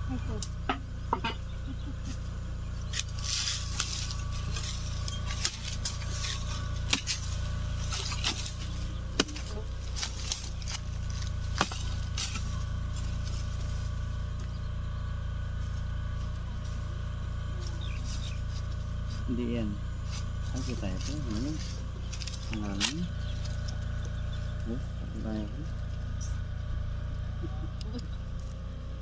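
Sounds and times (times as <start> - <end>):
steady low rumble: 0.0 - 29.0
metal blade chopping into soil: 2.9 - 12.7.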